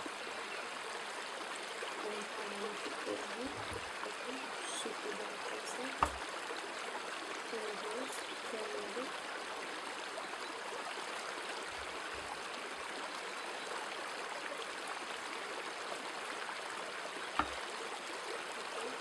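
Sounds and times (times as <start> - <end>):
knife tapping plastic cutting board: 6.0 - 6.2, 17.4 - 17.6.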